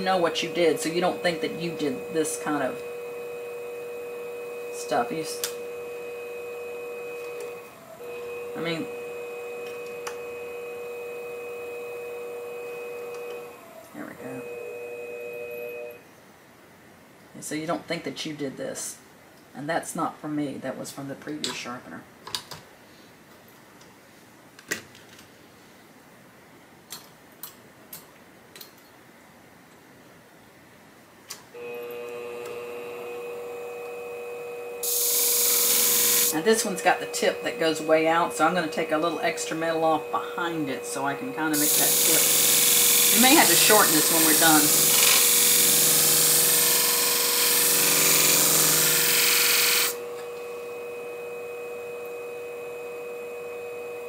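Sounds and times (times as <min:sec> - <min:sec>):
machine motor hum: 0:00.0 - 0:16.0, 0:31.6 - 0:54.0.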